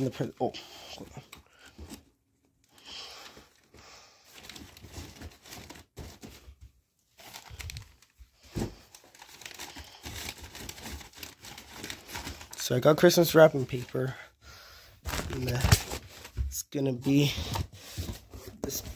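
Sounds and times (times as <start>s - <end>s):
wrapping paper crinkling: 4.3s - 6.5s, 7.1s - 14.1s, 15.1s - 16.4s.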